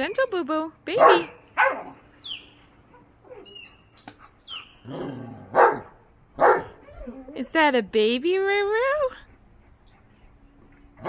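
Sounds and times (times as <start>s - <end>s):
dogs barking and yipping: 0.9s - 7.4s.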